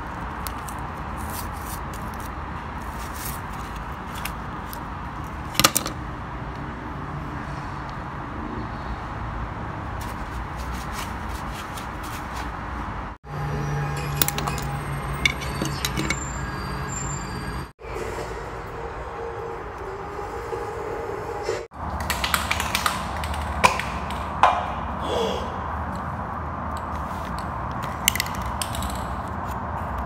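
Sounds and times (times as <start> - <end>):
plastic toy parts clicking: 5.6 - 6.0.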